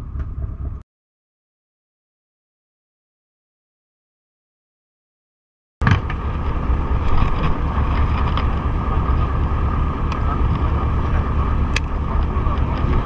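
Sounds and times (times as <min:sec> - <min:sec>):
constant hum: 0:00.0 - 0:00.8, 0:05.8 - 0:13.0
wind buffeting microphone: 0:05.8 - 0:13.0.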